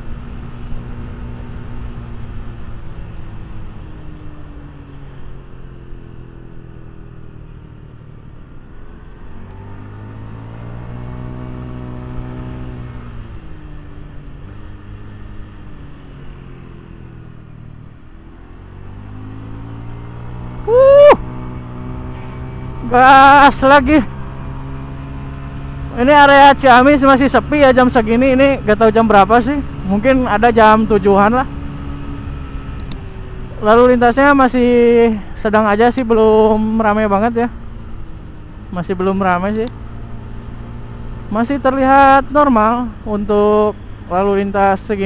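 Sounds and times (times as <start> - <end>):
scooter engine revving: 28.0 - 35.0, 39.5 - 41.3.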